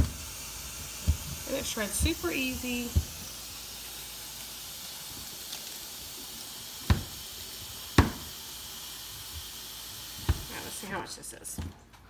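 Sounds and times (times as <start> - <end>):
steady hiss: 0.0 - 11.4.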